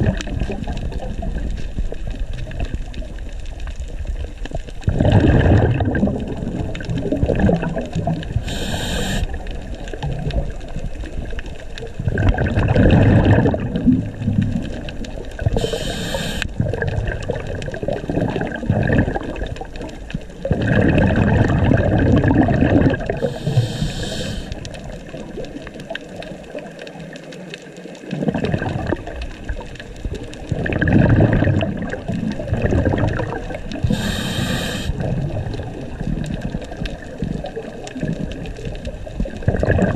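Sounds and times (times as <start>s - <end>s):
exhaled bubbles rushing: 0.0s - 39.9s
diver inhaling through regulator: 8.4s - 9.4s, 15.5s - 16.6s, 23.1s - 24.7s, 33.8s - 35.1s.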